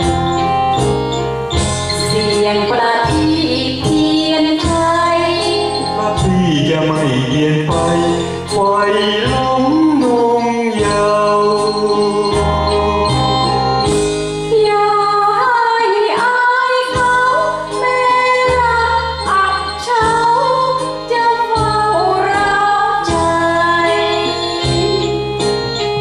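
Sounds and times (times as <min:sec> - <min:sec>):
woman singing into microphone: 0:00.0 - 0:01.0, 0:01.9 - 0:06.3, 0:14.5 - 0:25.5
keyboard backing chords: 0:00.0 - 0:26.0.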